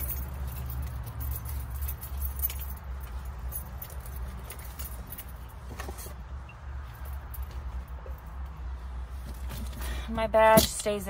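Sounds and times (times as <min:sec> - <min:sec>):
metal clips jingling: 0:00.0 - 0:06.1.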